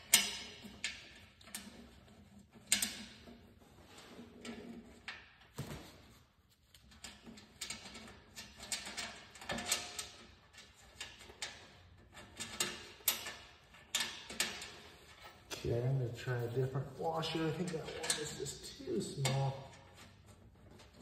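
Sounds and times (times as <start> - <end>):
metal clicks of nut and bolt: 0.0 - 1.9, 2.6 - 3.3, 6.9 - 15.5, 17.8 - 18.4.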